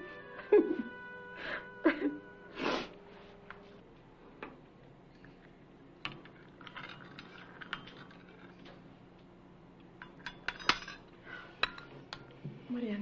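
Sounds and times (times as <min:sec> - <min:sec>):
cups and cutlery clinking: 0:06.1 - 0:08.8, 0:10.0 - 0:12.4.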